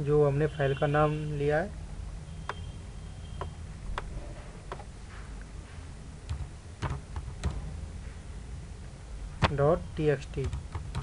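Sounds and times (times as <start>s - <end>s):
low steady hum: 0.0s - 11.0s
keyboard keystrokes: 6.3s - 7.6s, 10.4s - 11.0s.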